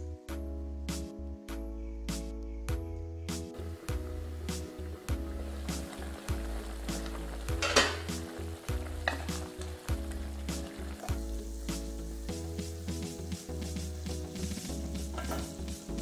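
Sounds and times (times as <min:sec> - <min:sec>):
curry bubbling and sizzling: 0:03.6 - 0:16.0.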